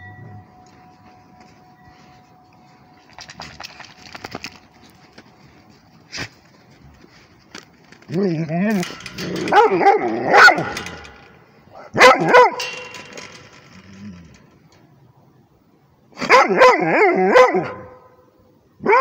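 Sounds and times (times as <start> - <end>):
dog barking: 9.5 - 10.8, 11.8 - 12.6, 16.2 - 18.0.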